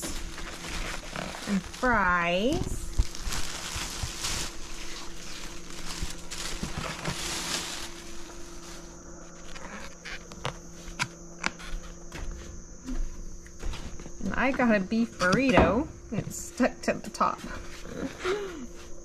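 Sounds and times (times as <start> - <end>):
rustling handling noise: 0.0 - 14.3
high insect drone: 0.0 - 19.0.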